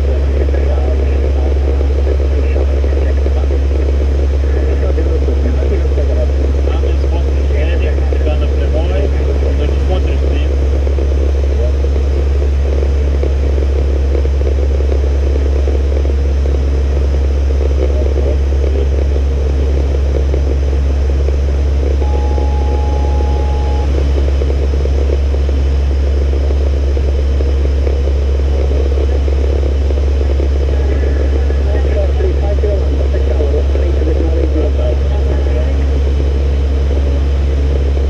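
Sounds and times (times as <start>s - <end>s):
turboprop engines humming: 0.0s - 38.0s
short high tone: 22.0s - 24.0s.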